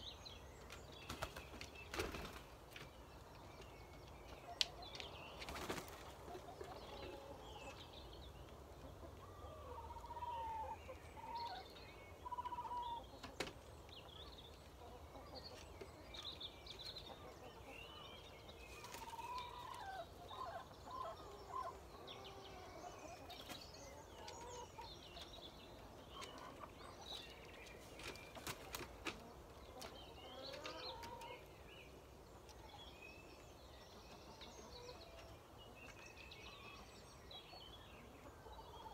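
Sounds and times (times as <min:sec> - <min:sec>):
small birds chirping: 0:00.0 - 0:38.9
chickens clucking softly: 0:08.4 - 0:31.6.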